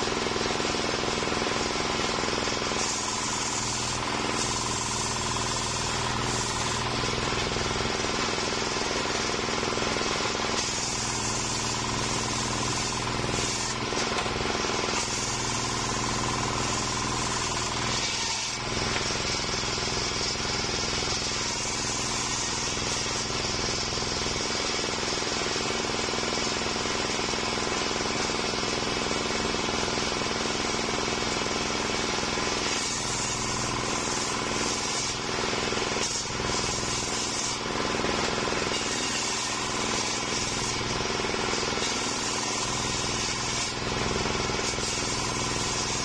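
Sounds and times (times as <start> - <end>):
circular saw cutting wood: 0.0 - 46.0
saw motor hum: 0.0 - 46.0.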